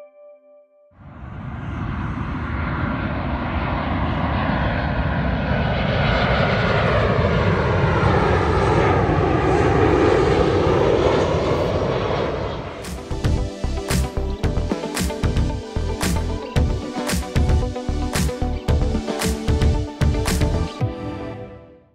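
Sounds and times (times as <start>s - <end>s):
jet airliner rumble and hiss: 1.1s - 17.9s.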